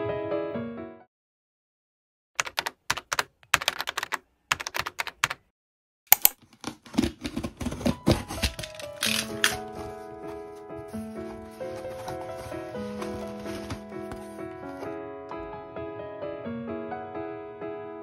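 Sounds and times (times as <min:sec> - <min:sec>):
box cutter slicing tape: 0:06.1 - 0:09.7.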